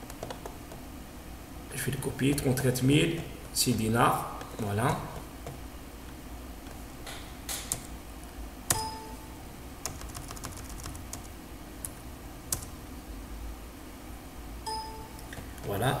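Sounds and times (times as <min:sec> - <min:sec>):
computer keyboard keystrokes: 0:00.0 - 0:00.8, 0:09.8 - 0:12.7.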